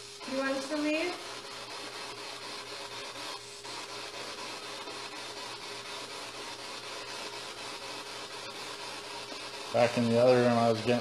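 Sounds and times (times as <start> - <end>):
static hiss: 0.0 - 11.0.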